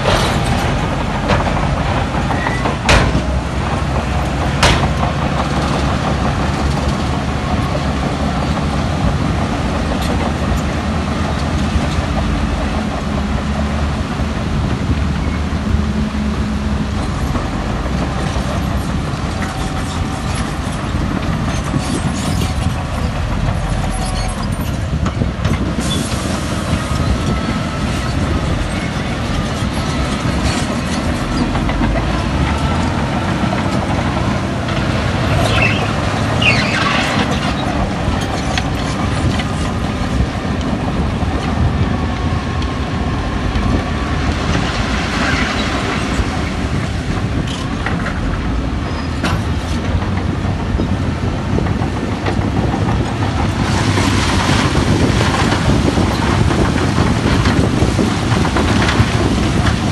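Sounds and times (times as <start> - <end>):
diesel engine running under load: 0.0 - 59.9
high metallic squeals: 21.5 - 24.9, 35.3 - 37.6.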